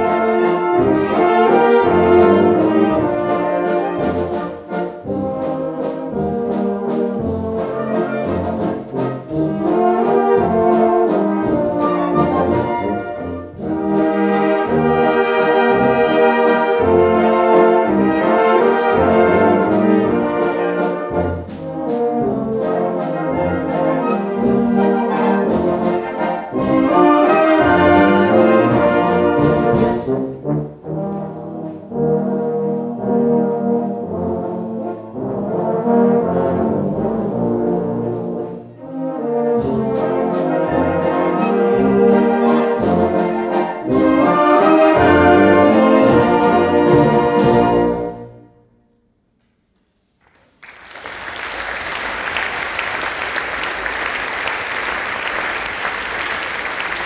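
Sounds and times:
brass band playing: 0.0 - 48.6, 50.9 - 57.0
audience applauding: 50.2 - 57.0.

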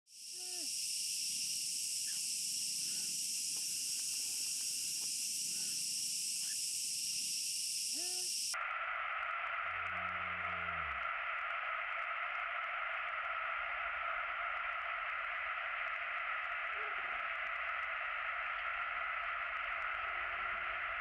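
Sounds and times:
high insect-like chorus: 0.1 - 21.0
faint hooting calls: 0.2 - 8.6, 16.6 - 17.6
low steady buzz: 0.3 - 21.0
low falling tone: 9.6 - 11.3.

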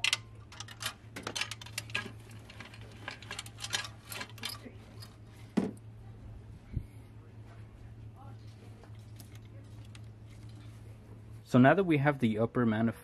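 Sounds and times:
light metallic clinks and knocks: 0.0 - 5.2
loose fasteners rattling: 0.0 - 5.2.

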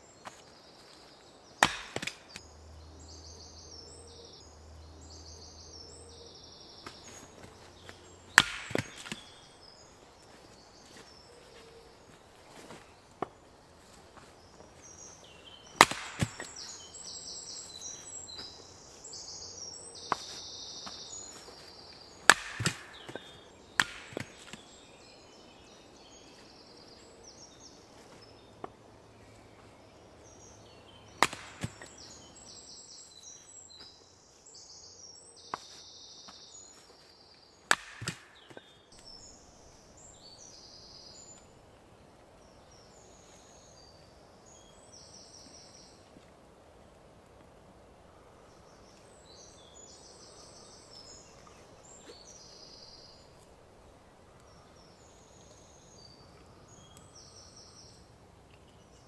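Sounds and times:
hatchet chopping wood: 1.6 - 2.4, 8.3 - 9.4, 15.8 - 16.8, 22.2 - 24.6, 31.2 - 32.0, 37.6 - 38.7.

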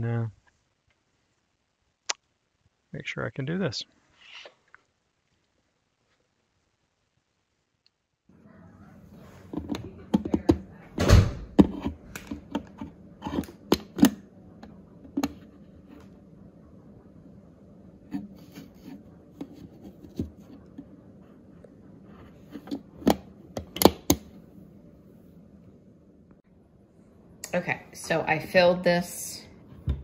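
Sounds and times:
steady low hum: 8.3 - 30.0.

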